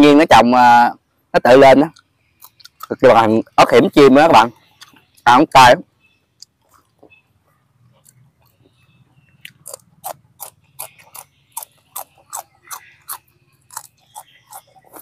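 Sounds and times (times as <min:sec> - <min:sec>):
person chewing chili crunchily: 0:01.8 - 0:03.9, 0:04.6 - 0:05.2, 0:06.4 - 0:15.0.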